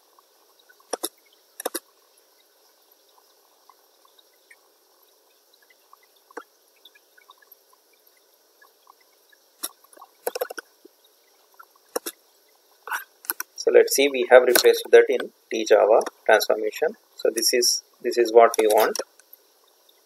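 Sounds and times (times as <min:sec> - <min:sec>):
faint steady hiss: 0:00.0 - 0:20.0
mouse and keyboard clicks: 0:00.9 - 0:01.8.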